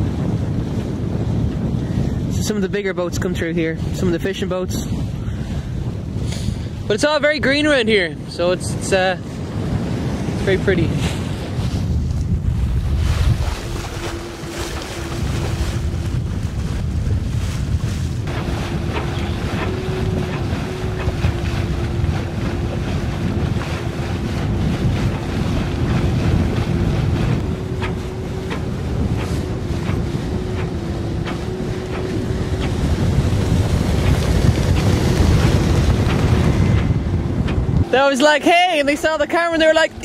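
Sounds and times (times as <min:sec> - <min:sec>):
water rushing along hull: 0:00.0 - 0:40.0
wind buffeting microphone: 0:00.0 - 0:40.0
motorboat engine passing: 0:12.7 - 0:40.0.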